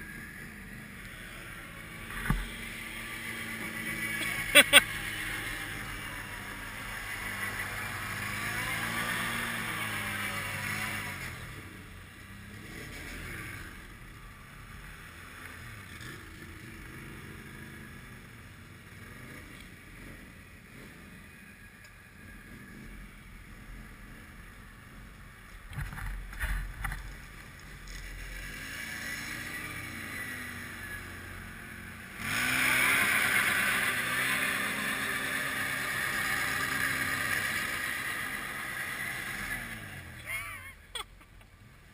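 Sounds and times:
quad engine revving: 0.0s - 21.6s, 22.2s - 40.9s
quad engine idling: 0.1s - 12.5s, 21.7s - 41.9s.

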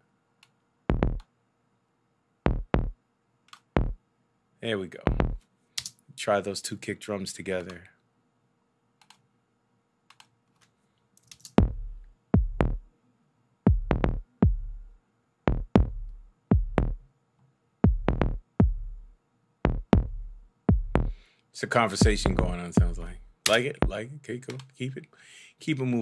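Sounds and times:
kick drum beat: 0.9s - 1.2s, 2.5s - 3.0s, 3.7s - 4.0s, 5.1s - 5.4s, 11.6s - 12.9s, 13.7s - 14.9s, 15.5s - 17.0s, 17.8s - 21.2s, 22.0s - 23.2s.

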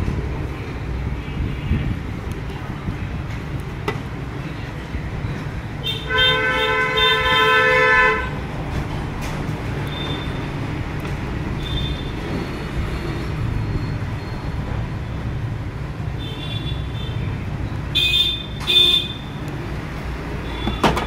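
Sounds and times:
road traffic rumbling: 0.0s - 21.0s
vehicle horns honking: 5.8s - 8.4s.

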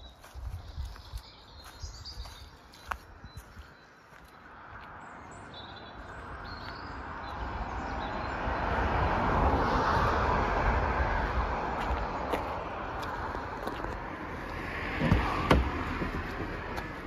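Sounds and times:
vehicle passing close by: 4.5s - 17.0s.

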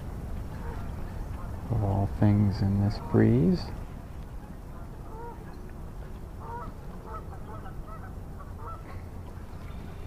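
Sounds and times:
low wind rumble: 0.0s - 10.0s
geese honking: 4.7s - 5.6s, 6.4s - 8.9s.

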